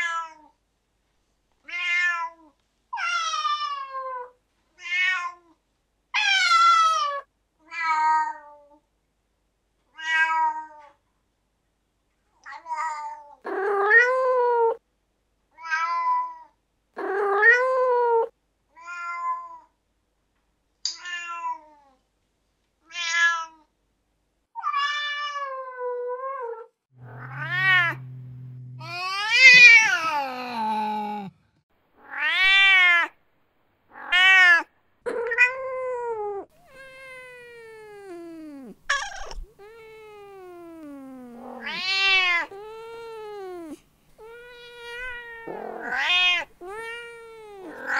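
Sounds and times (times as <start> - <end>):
cat meowing: 27.0 - 31.3, 32.0 - 33.2, 33.9 - 47.9.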